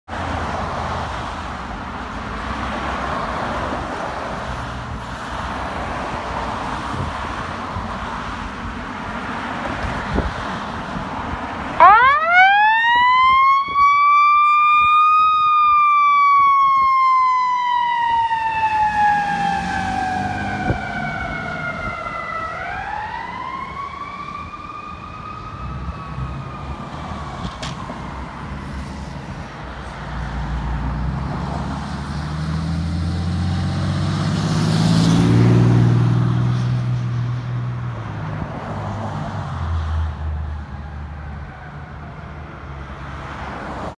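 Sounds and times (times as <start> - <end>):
passing traffic engine and tyres: 0.1 - 43.9
fire truck siren wailing: 11.5 - 29.6, 40.4 - 43.1.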